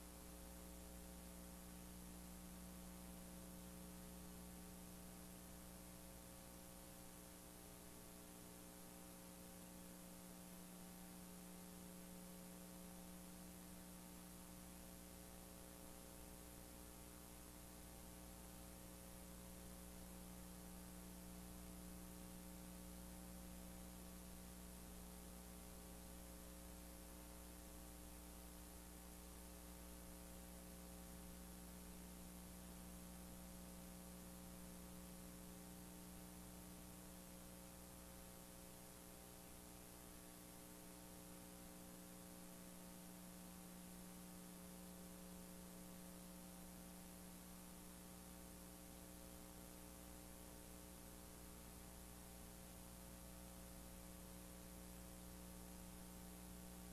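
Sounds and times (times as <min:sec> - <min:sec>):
faint electrical mains hum: 0:00.0 - 0:56.9
soft hiss: 0:00.0 - 0:56.9.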